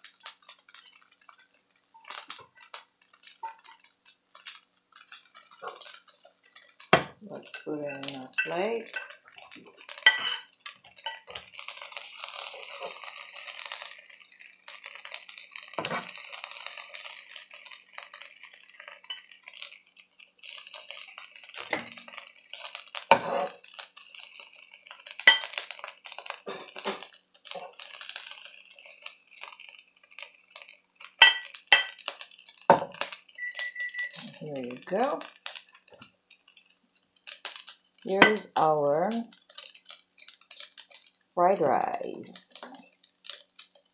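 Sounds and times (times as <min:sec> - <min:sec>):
metal spoon scraping a pan: 0:00.3 - 0:14.0, 0:14.9 - 0:17.4, 0:18.0 - 0:19.7, 0:20.4 - 0:29.6, 0:30.6 - 0:36.8, 0:37.4 - 0:38.7
metal clinking on plate: 0:09.8 - 0:11.4, 0:31.2 - 0:32.0.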